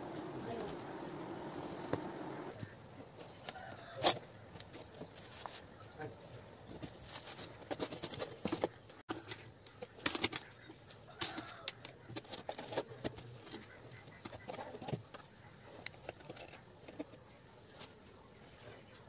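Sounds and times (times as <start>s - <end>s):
hand working potting soil: 0.0s - 2.7s.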